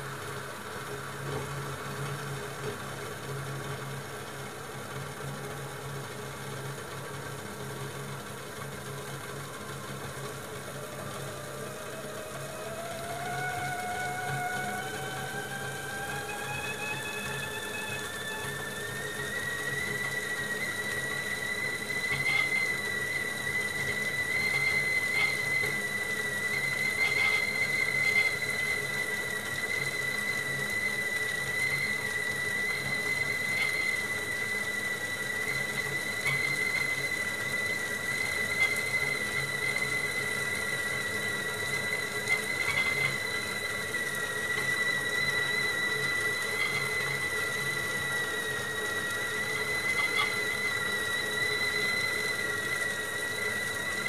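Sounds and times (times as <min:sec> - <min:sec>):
kettle whistling: 0:00.0 - 0:54.0.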